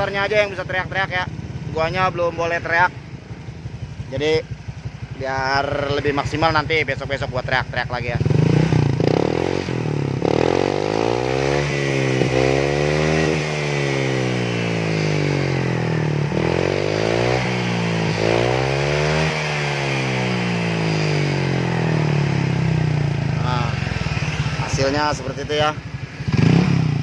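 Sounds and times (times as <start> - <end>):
scooter engine revving and idling: 0.0 - 27.0.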